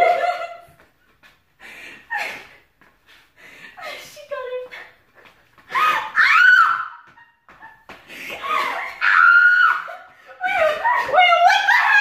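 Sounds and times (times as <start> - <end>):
woman screaming: 5.7 - 7.0, 8.4 - 12.0.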